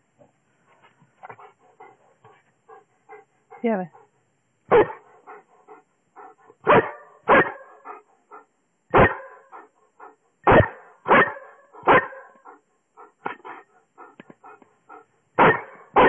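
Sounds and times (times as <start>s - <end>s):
dog barking: 4.7s - 12.6s, 15.4s - 16.0s.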